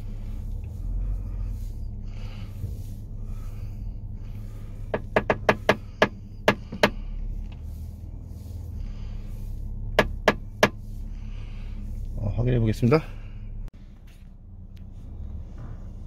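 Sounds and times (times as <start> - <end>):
low cabin rumble: 0.0 - 16.0
sharp sunroof clicks: 4.9 - 7.7, 9.9 - 10.8.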